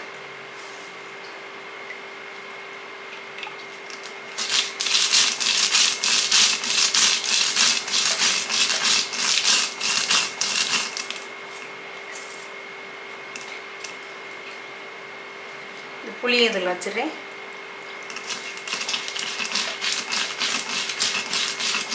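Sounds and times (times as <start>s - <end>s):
stone roller grinding grains: 4.3s - 11.6s, 18.0s - 21.9s.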